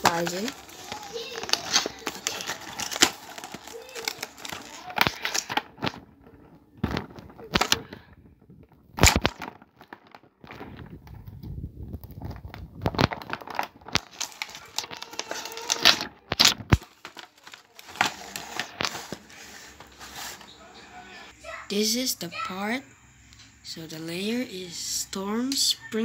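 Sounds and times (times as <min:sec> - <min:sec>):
plastic bags crinkling and tearing: 0:00.0 - 0:20.6.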